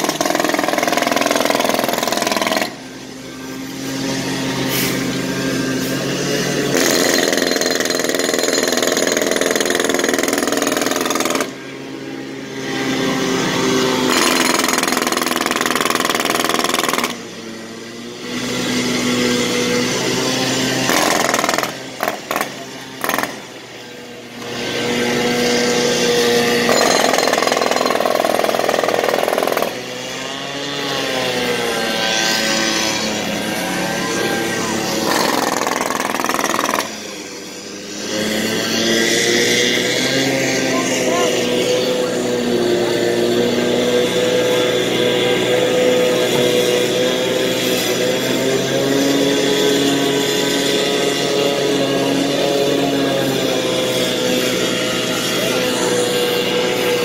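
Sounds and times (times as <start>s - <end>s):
jackhammer breaking pavement: 0.0s - 11.8s, 13.6s - 17.4s, 18.2s - 23.7s, 24.3s - 42.4s
engine hum: 0.0s - 57.0s.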